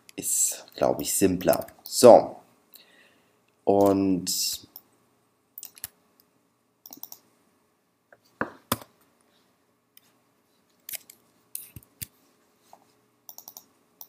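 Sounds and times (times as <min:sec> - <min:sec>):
mouse and keyboard clicks: 0:06.8 - 0:07.2, 0:13.3 - 0:13.7.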